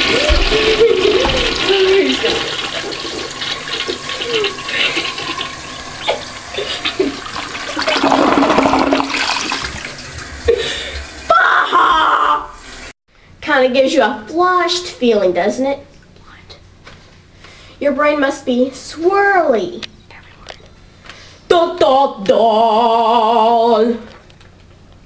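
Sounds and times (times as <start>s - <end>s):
toilet flushing: 0.0s - 13.0s.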